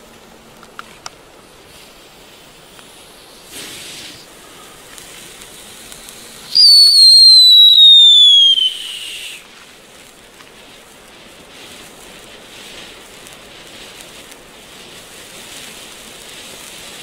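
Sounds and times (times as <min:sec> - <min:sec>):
firework fountain hissing: 0:00.0 - 0:17.0
descending firework whistle: 0:03.4 - 0:09.9.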